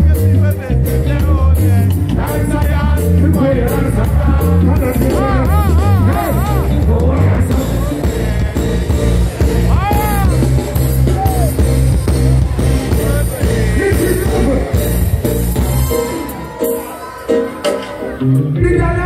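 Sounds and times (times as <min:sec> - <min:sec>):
man singing: 0:00.0 - 0:11.5, 0:12.9 - 0:15.0, 0:18.3 - 0:19.0
live reggae band playing: 0:00.0 - 0:19.0
rising and falling whoop: 0:15.4 - 0:17.9.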